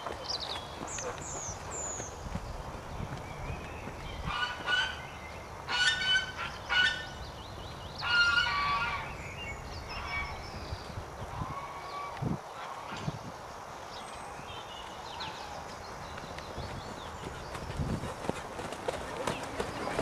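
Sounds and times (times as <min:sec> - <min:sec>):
hoofbeats on soft sand: 0:00.0 - 0:05.5, 0:15.6 - 0:20.0
birds honking: 0:05.7 - 0:07.2, 0:08.0 - 0:09.2.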